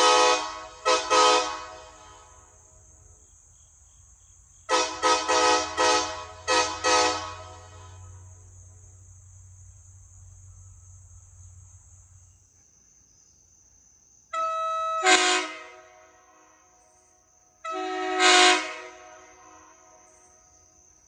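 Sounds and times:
air horn honks: 0.0s - 2.5s, 4.7s - 8.2s, 14.4s - 16.1s, 17.7s - 19.5s.

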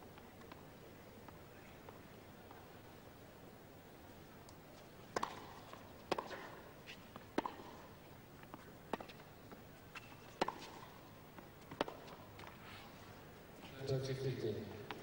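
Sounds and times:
rackets striking tennis ball: 5.1s - 12.6s
ball bouncing on court: 5.2s - 5.5s, 7.4s - 7.7s, 11.7s - 12.1s.

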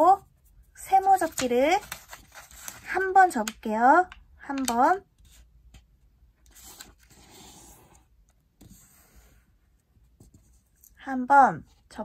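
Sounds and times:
paper rustling while folded: 0.9s - 3.6s, 6.5s - 7.9s.

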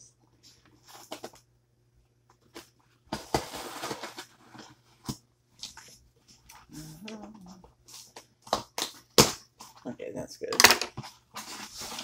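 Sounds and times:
cardboard clicks and rustles: 0.6s - 1.5s.

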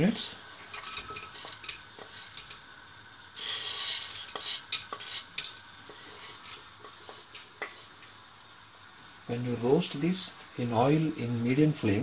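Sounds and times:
spices sizzling in hot oil: 0.0s - 12.0s
spoon scraping and tapping a plate: 0.8s - 2.6s, 3.8s - 7.8s.

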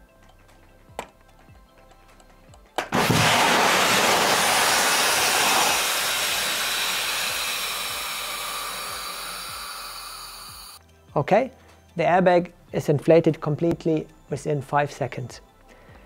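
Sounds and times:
airbag inflating with rushing hiss: 3.0s - 10.8s.

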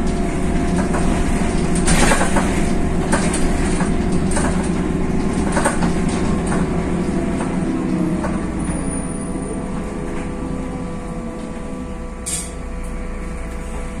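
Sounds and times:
bus diesel engine running: 0.0s - 14.0s.

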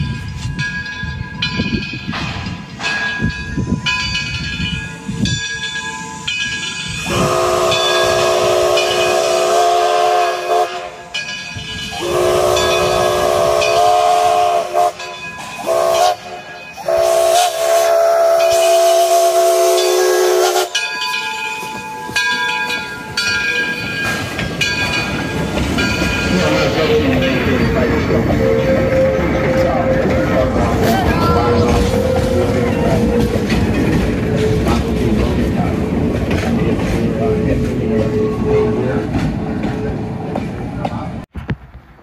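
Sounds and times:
steam locomotive chime whistle: 3.0s - 25.0s, 25.8s - 34.9s.

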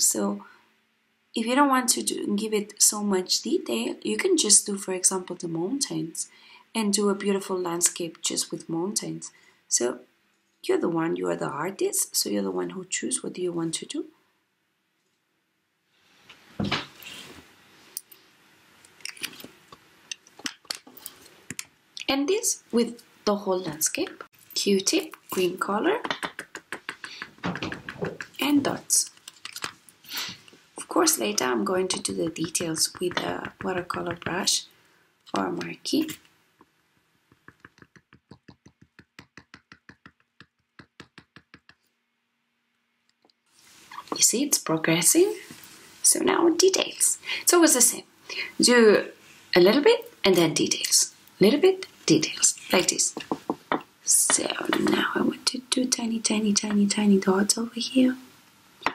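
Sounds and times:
small clicks and taps: 26.0s - 28.4s, 37.3s - 41.9s.

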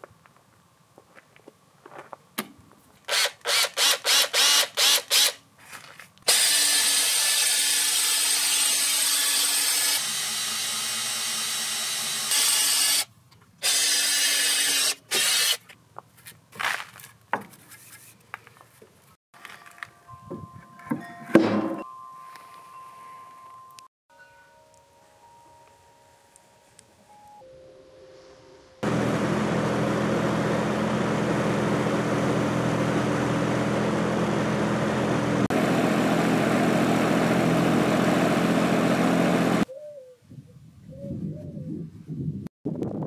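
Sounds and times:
cordless drill boring wood: 3.1s - 5.4s, 6.3s - 15.6s.

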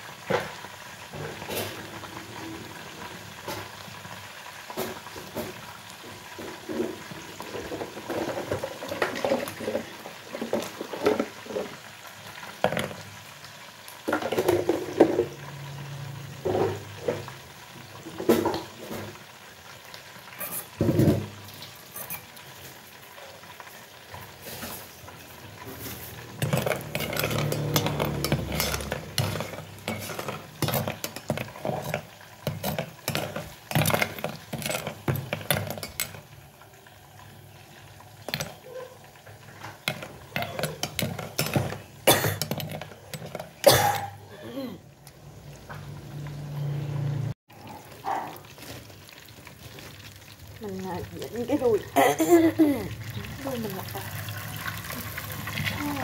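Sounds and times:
oil sizzling: 0.0s - 56.0s
metal ladle scraping a pot: 20.3s - 21.1s, 21.7s - 22.4s, 24.2s - 36.3s, 39.7s - 44.1s.

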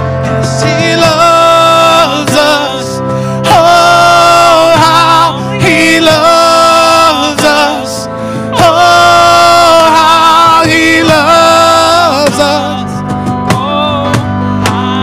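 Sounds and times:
singer holding wordless notes: 0.0s - 15.0s
worship band music: 0.0s - 15.0s.

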